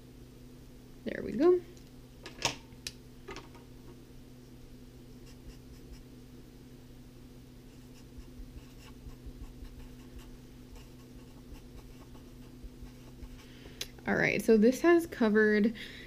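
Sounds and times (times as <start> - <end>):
steady low hum: 0.0 - 16.0
marker writing on paper: 7.8 - 13.6.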